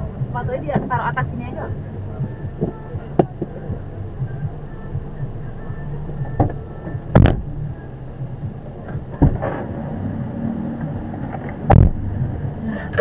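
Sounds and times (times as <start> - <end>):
car engine running: 0.0 - 13.0
car door thuds: 2.2 - 5.1, 6.0 - 9.8, 11.4 - 12.0.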